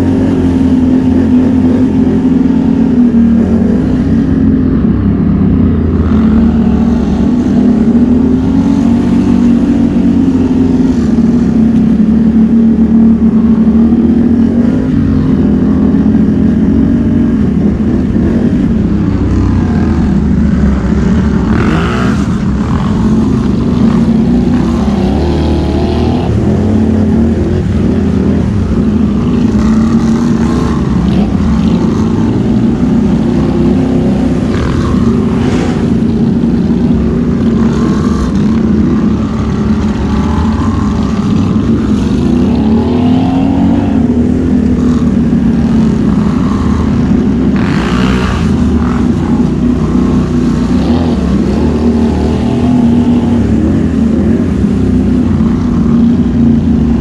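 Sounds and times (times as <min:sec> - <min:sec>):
atv engine revving: 0:00.0 - 0:57.0.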